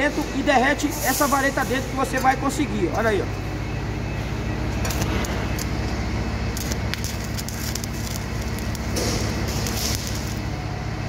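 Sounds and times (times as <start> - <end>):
welding arc crackling: 4.6 - 11.0
sharp welding pops: 6.6 - 10.5.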